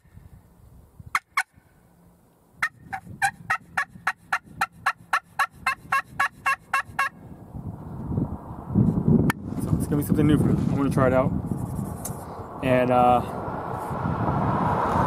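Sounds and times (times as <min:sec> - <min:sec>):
turkey call yelps: 0:01.1 - 0:01.6, 0:02.6 - 0:07.2.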